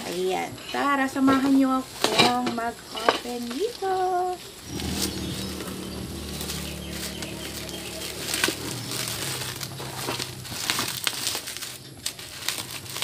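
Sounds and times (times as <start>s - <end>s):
steady low hum: 4.6s - 11.0s
bubble wrap crinkling: 6.2s - 13.0s.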